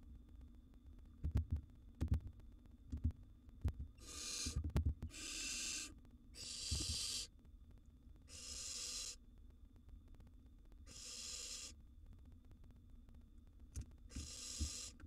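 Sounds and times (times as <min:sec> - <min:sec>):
owlets rasping hiss-screech calls: 0:04.0 - 0:07.3, 0:08.3 - 0:09.2, 0:10.9 - 0:11.8, 0:14.1 - 0:15.0.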